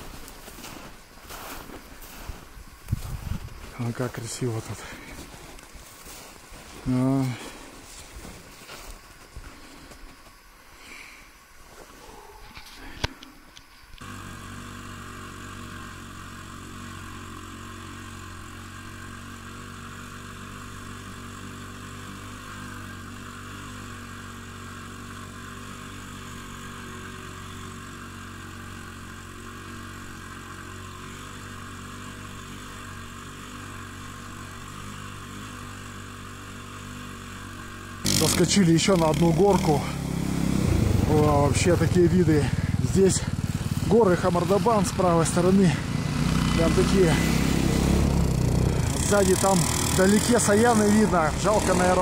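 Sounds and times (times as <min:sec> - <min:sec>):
snowmobile engine droning: 0:14.0 - 0:52.0.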